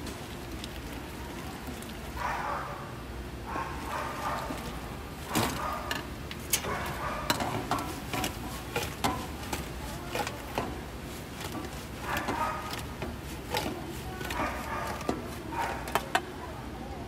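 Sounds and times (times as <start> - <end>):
metal ladle knocking on wok: 7.2 - 15.3.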